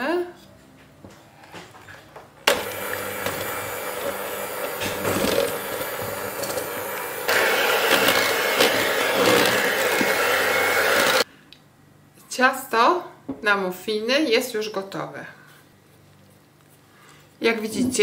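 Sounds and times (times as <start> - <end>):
electric hand mixer whisking: 2.5 - 11.3.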